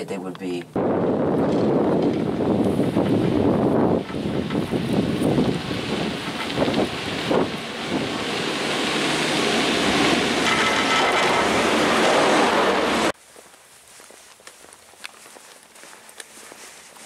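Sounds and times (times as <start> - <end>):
wind on microphone: 0.7 - 13.1
cable car gondola rushing: 1.0 - 13.1
footsteps on brick path: 13.1 - 17.0.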